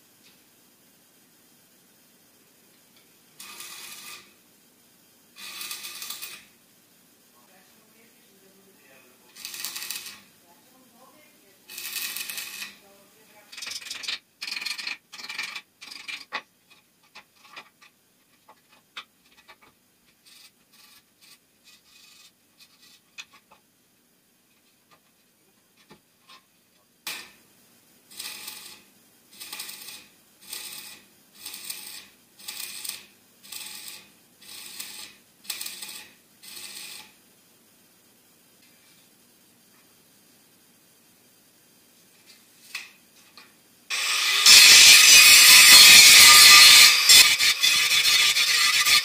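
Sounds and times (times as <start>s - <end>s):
welding crackle bursts: 2.9s - 4.4s, 5.3s - 6.6s, 8.7s - 10.8s, 11.6s - 17.7s, 27.0s - 27.4s, 28.1s - 37.2s, 43.9s - 49.0s.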